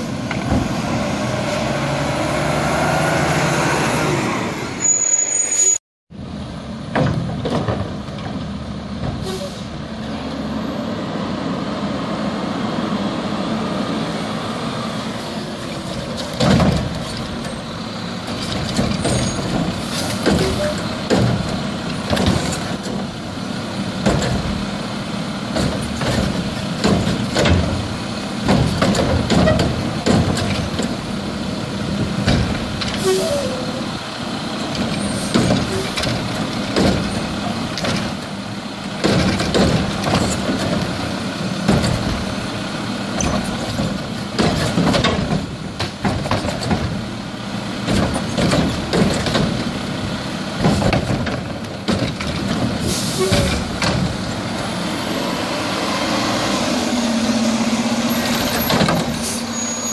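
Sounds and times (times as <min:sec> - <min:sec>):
garbage truck diesel engine running: 0:06.2 - 0:59.9
trash cart clattering and banging: 0:06.8 - 0:09.5, 0:15.5 - 0:55.0, 0:58.0 - 0:59.9.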